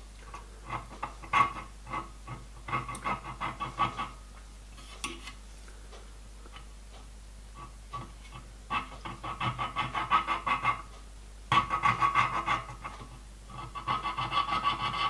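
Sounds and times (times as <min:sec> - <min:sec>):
file stroking on brass sheet: 0:00.6 - 0:04.2, 0:07.6 - 0:10.9, 0:11.5 - 0:15.0.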